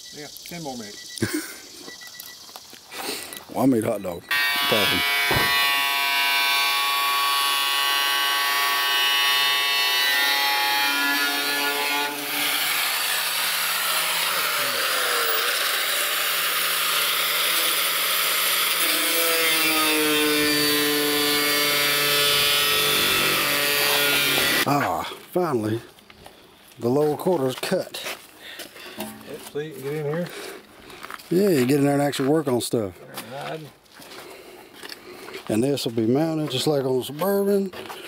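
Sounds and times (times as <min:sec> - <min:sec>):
angle grinder cutting steel: 0:04.3 - 0:24.7.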